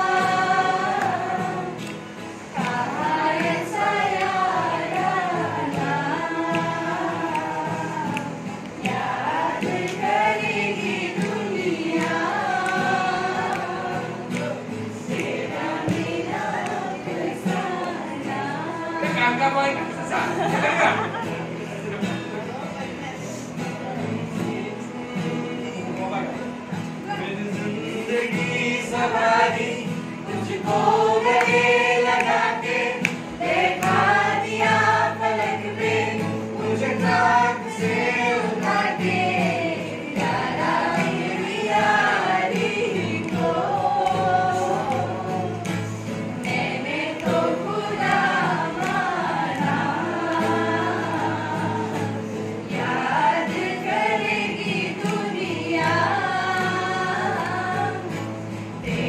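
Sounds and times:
group singing in chorus: 0:00.0 - 0:22.4, 0:23.2 - 0:59.0.

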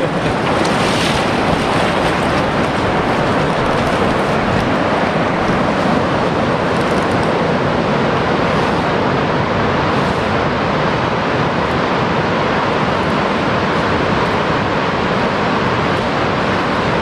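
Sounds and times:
river water flowing over rocks: 0:00.0 - 0:17.0.

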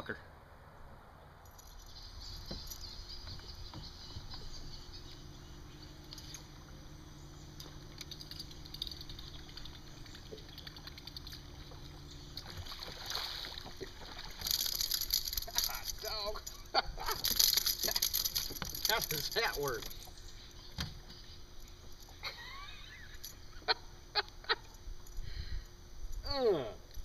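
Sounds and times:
low steady hum: 0:00.0 - 0:27.0
lure blade churning water: 0:07.4 - 0:16.1
water splashing: 0:07.6 - 0:16.2.

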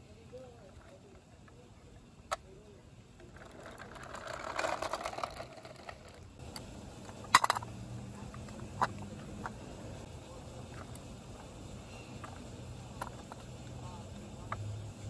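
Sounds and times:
ratcheting toy rattle: 0:03.2 - 0:06.4, 0:07.2 - 0:07.7.

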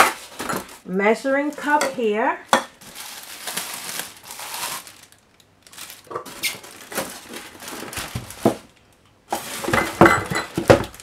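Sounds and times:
plastic film crinkling: 0:02.8 - 0:09.8, 0:10.5 - 0:11.0.

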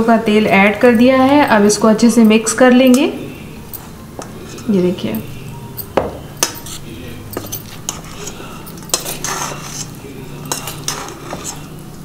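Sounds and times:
metal spoon clinking in a bowl: 0:03.7 - 0:11.7.

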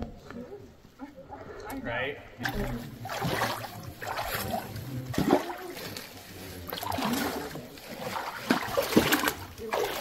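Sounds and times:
feet splashing through shallow water: 0:02.4 - 0:10.0.

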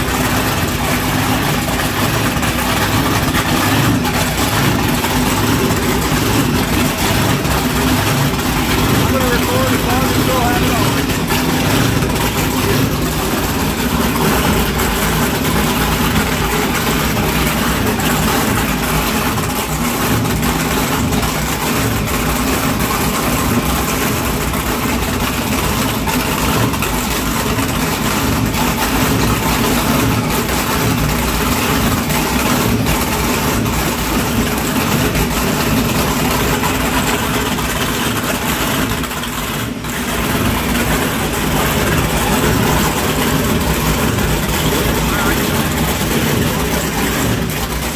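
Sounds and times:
boat engines idling: 0:00.0 - 0:47.9.

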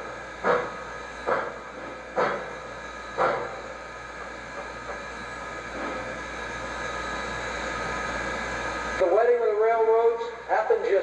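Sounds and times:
steam hiss: 0:00.0 - 0:06.1
steam locomotive exhaust chuffs: 0:00.0 - 0:09.2.

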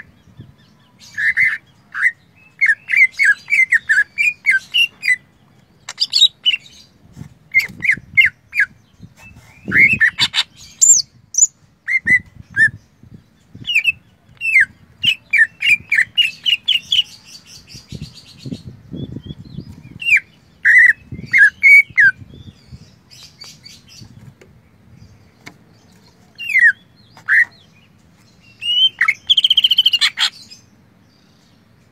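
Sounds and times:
bird singing whistles and trills: 0:13.6 - 0:24.1, 0:28.5 - 0:30.2.

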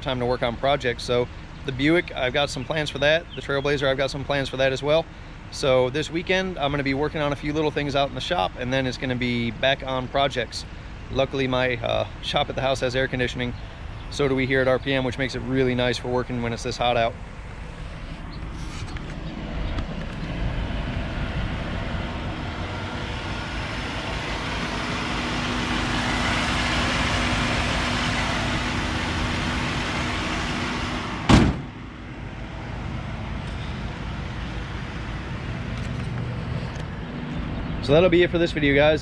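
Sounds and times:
car engine idling: 0:00.0 - 0:39.0
loud slam: 0:31.0 - 0:31.9.

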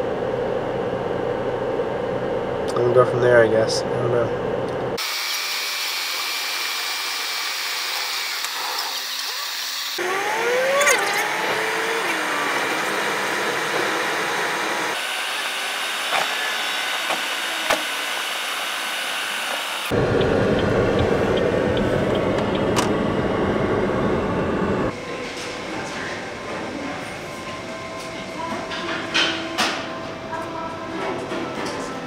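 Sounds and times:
car road and cabin noise: 0:19.8 - 0:25.0.

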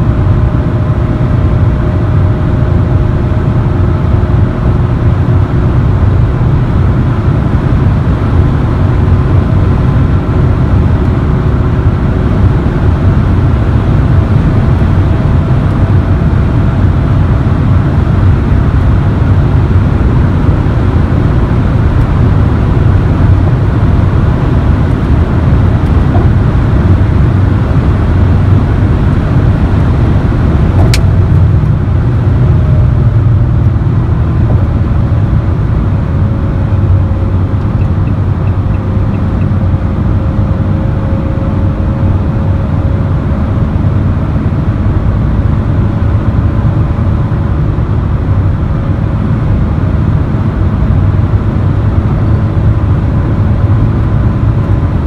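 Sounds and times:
van engine drone: 0:00.0 - 0:55.0
wind and road noise: 0:00.0 - 0:55.0
sharp click: 0:30.8 - 0:31.1.

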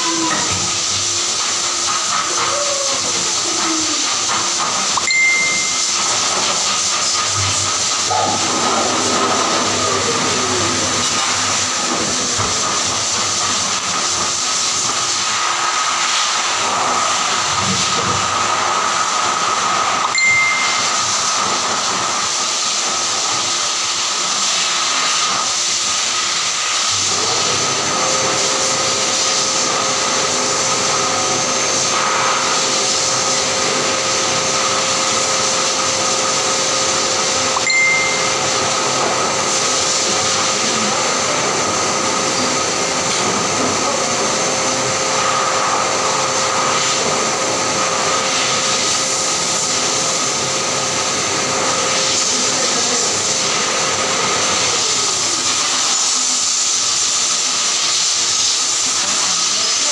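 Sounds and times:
pet dryer blowing air: 0:00.0 - 0:59.9
short high tones: 0:05.0 - 0:06.4, 0:20.1 - 0:21.4, 0:37.6 - 0:38.9.

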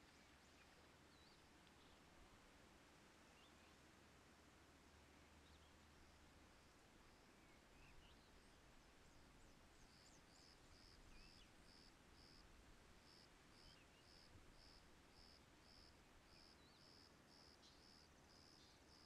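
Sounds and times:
insect chirping: 0:09.8 - 0:19.0.

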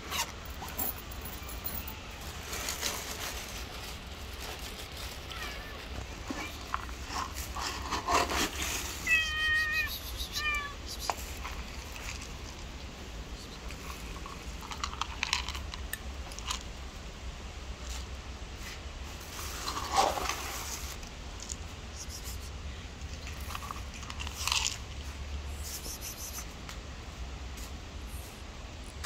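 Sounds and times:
cat meowing: 0:05.3 - 0:06.6, 0:09.0 - 0:10.9.

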